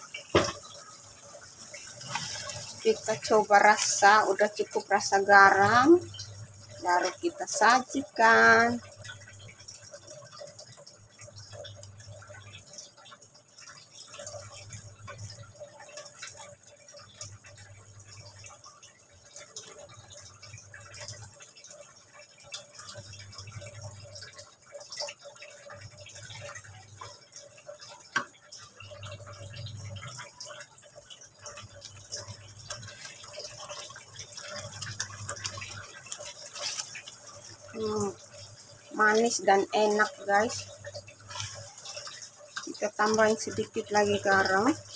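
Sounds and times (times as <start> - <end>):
sauce bubbling: 0.0 - 44.9
spatula stirring: 1.6 - 4.2, 31.5 - 38.5, 39.1 - 44.6.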